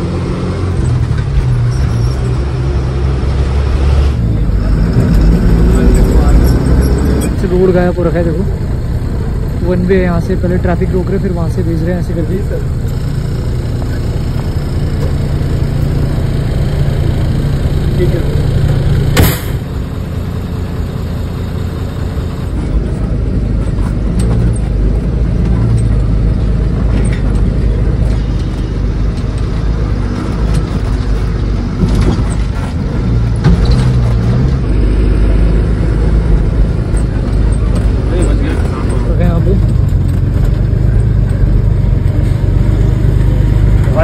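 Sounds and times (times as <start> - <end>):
bus engine running: 0.0 - 44.0
road rumble: 0.0 - 44.0
sharp knock: 19.2 - 19.7.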